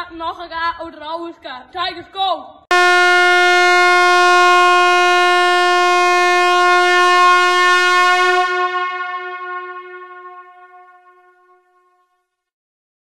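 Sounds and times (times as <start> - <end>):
air horn long blast: 2.7 - 12.1.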